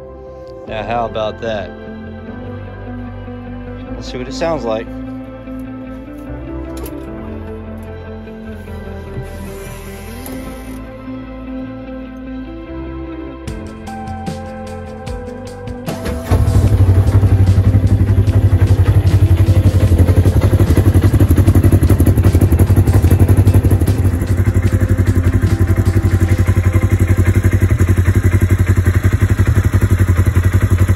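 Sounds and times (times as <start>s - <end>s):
engine idling exhaust pulse: 15.9s - 30.9s.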